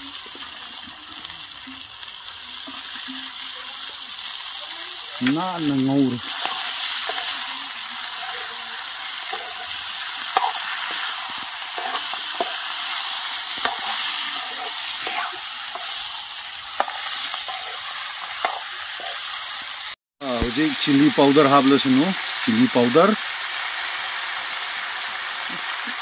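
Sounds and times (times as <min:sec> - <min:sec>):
food sizzling in a pan: 0:00.0 - 0:26.0
metal spoon scraping a pan: 0:05.2 - 0:19.6.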